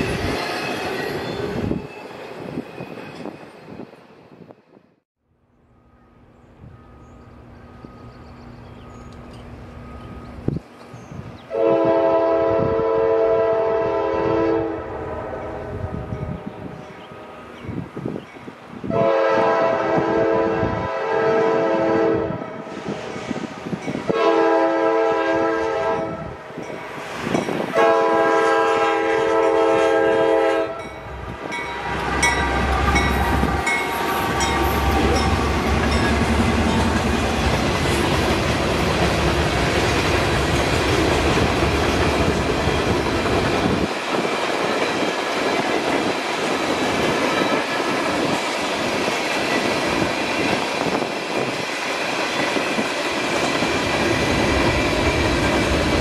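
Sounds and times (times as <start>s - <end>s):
train air horn blasts: 11.5s - 16.2s, 18.8s - 23.1s, 24.1s - 26.5s, 27.7s - 36.9s
train wheels clattering on rails: 31.3s - 56.0s.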